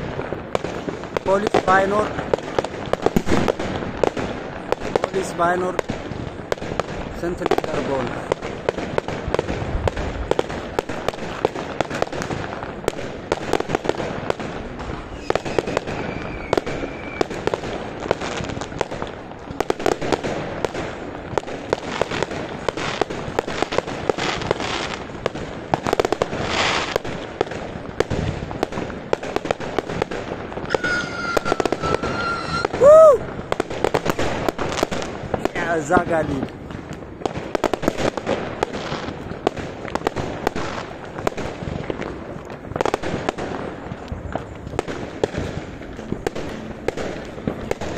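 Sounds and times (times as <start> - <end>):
fireworks bangs and crackles: 0.0 - 47.9
brief high tone: 30.7 - 32.8.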